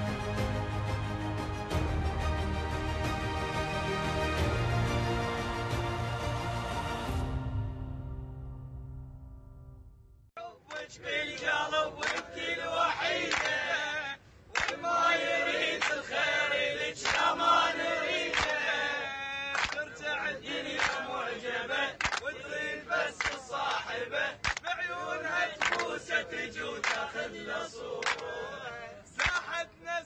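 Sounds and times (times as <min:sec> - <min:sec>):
young men chanting: 0:10.4 - 0:30.0
people clapping in time: 0:10.7 - 0:13.7, 0:14.5 - 0:15.0, 0:15.6 - 0:16.1, 0:16.9 - 0:17.4, 0:18.1 - 0:18.9, 0:19.5 - 0:21.2, 0:21.8 - 0:28.4, 0:29.2 - 0:29.6.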